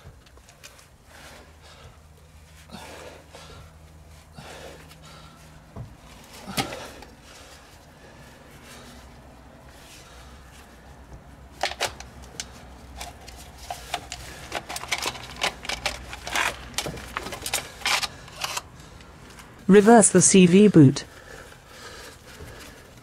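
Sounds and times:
rubbing and clicking of rubber: 11.5s - 18.7s.

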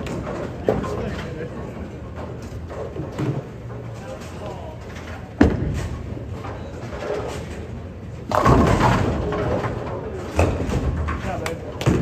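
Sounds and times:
bowling pins crashing: 8.3s - 11.2s.

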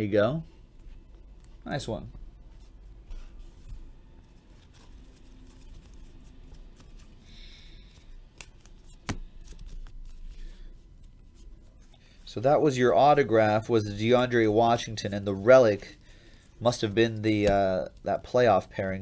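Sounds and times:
cards sliding and rustling: 2.6s - 12.3s.

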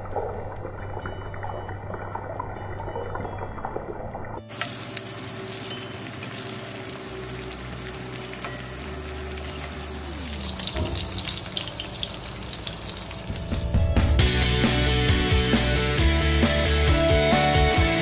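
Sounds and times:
fritters sizzling in hot oil: 4.5s - 13.9s.

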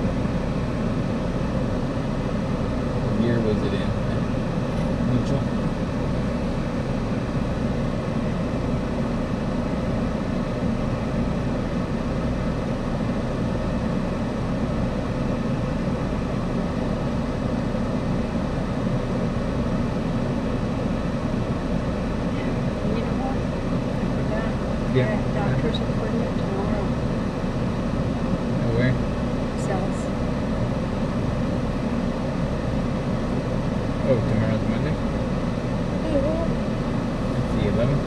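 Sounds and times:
car engine idling: 0.0s - 38.0s.

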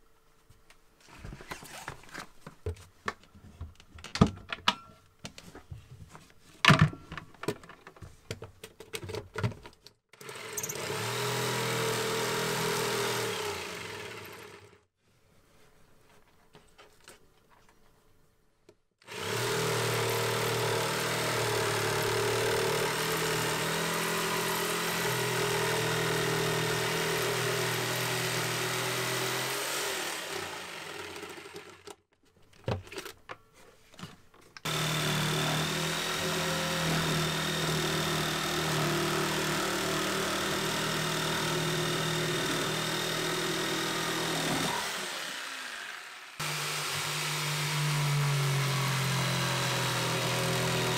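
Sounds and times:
jigsaw cutting: 10.2s - 14.8s, 19.0s - 32.0s, 34.6s - 50.9s.

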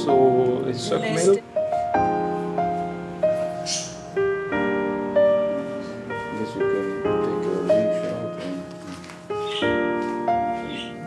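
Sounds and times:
slow gentle piano notes: 0.0s - 11.0s.

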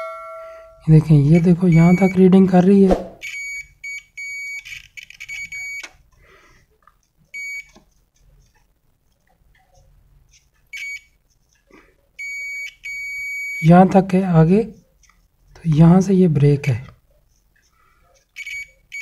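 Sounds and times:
multimeter continuity beeps: 1.3s - 2.4s, 3.2s - 5.9s, 7.4s - 7.7s, 10.8s - 11.2s, 12.2s - 13.7s, 18.4s - 19.0s.

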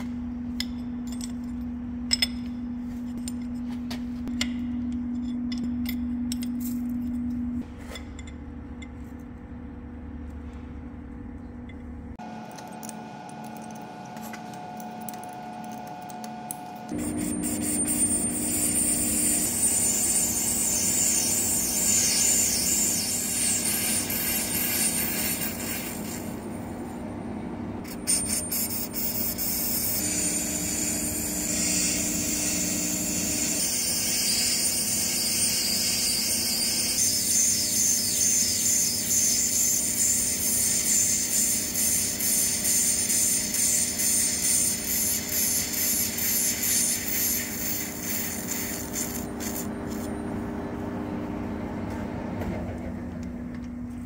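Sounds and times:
lathe humming: 12.2s - 26.4s, 28.7s - 46.4s
turning tool hissing on metal: 17.0s - 26.4s, 28.1s - 49.7s.

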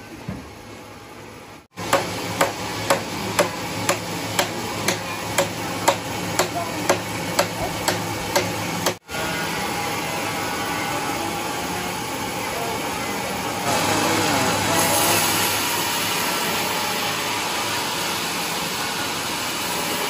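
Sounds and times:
machine hum: 0.0s - 20.0s
hand hammer striking: 1.9s - 9.0s.

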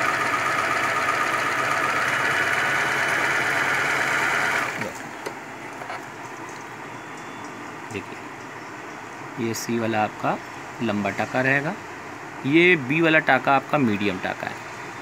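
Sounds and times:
electric sewing machine running: 0.0s - 5.0s.

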